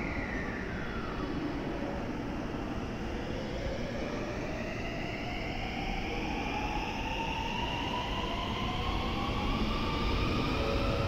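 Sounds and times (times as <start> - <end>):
low train rumble: 5.4 - 11.0.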